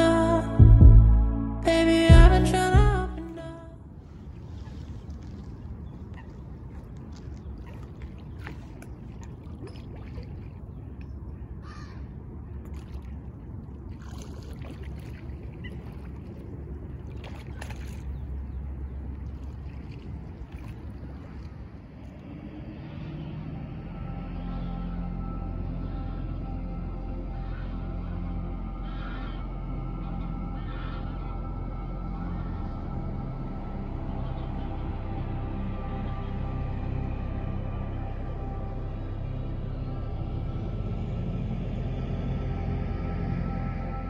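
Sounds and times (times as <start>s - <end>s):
music: 0.0s - 3.6s, 23.6s - 44.0s
low steady rumble: 0.0s - 44.0s
coots calling: 27.3s - 27.9s, 28.8s - 31.6s.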